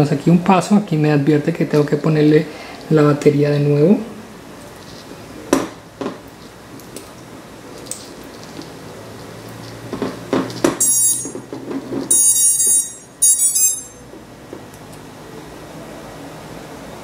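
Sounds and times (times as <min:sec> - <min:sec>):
high-pitched beeping: 0:12.1 - 0:14.0.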